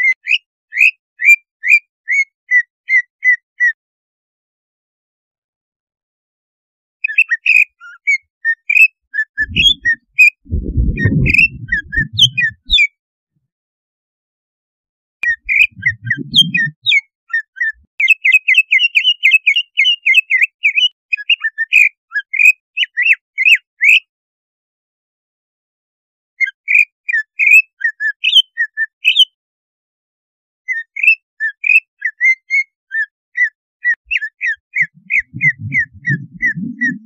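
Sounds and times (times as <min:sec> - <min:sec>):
low rough noise: 0:09.4 - 0:12.8, 0:34.9 - 0:37.0
bird singing sharp whistled chirps: 0:09.4 - 0:12.9, 0:15.2 - 0:17.0, 0:34.1 - 0:37.0.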